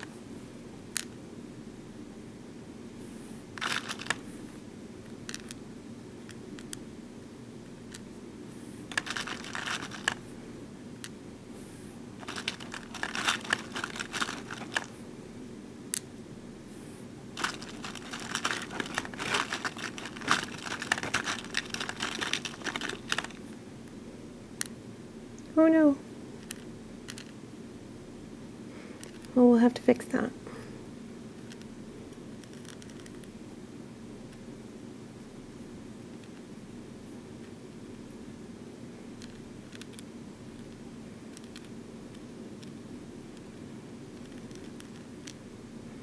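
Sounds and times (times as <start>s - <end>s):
faint low hum: 0.0s - 46.0s
plastic beads clicking and rattling: 3.6s - 4.2s, 8.9s - 10.2s, 12.2s - 14.9s, 17.4s - 23.4s.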